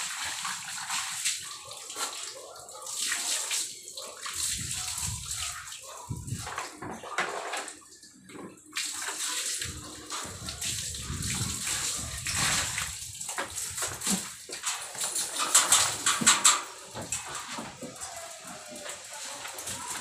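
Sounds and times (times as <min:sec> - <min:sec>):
water pouring over a dog: 0:00.0 - 0:20.0
water splashing on tile floor: 0:00.0 - 0:20.0.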